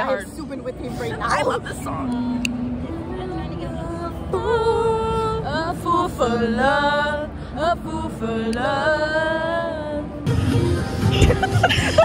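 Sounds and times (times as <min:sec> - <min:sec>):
woman singing pop melody: 0:01.0 - 0:12.0.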